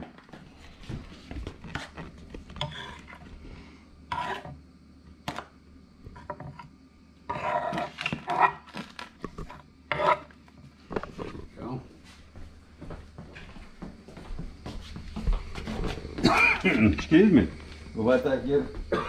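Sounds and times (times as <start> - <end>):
metal fork scraping wooden board: 1.7 - 3.2, 4.1 - 4.6, 7.3 - 10.3.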